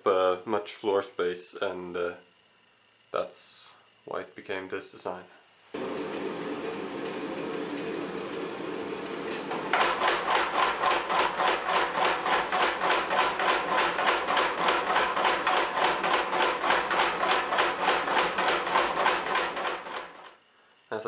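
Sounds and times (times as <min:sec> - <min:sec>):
motor humming: 0:05.8 - 0:18.0
power hammer pounding metal: 0:05.8 - 0:20.3.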